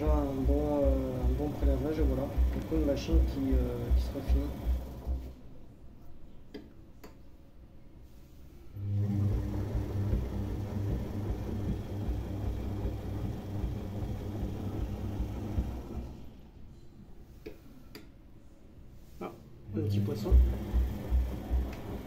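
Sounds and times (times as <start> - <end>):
washing machine drum turning: 0.0 - 5.4, 8.9 - 16.3, 19.8 - 22.0.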